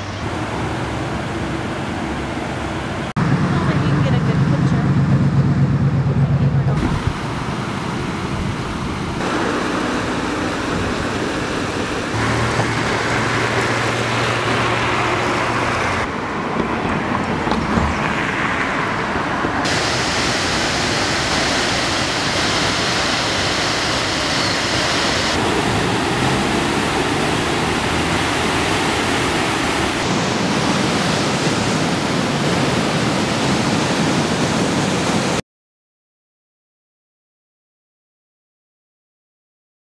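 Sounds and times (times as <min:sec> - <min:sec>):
river rushing: 0:00.0 - 0:03.6, 0:06.8 - 0:35.4
low hum: 0:00.4 - 0:16.3.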